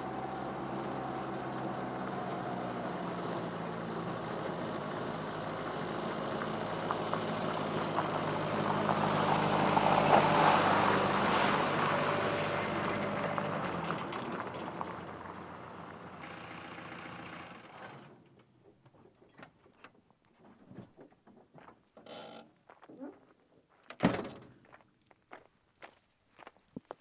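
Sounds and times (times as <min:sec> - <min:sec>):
pickup truck driving on gravel: 0:00.0 - 0:18.1.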